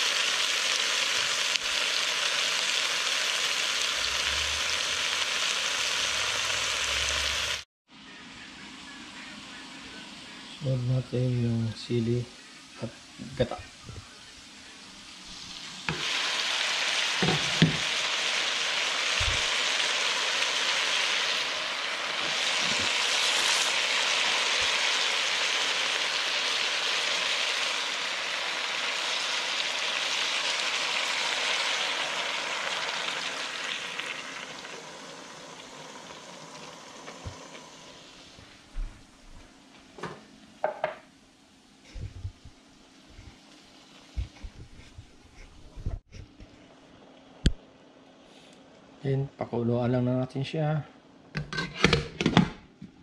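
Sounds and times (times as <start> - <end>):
loud sizzling in a pan: 0.0 - 7.7, 10.2 - 38.8, 42.8 - 46.1.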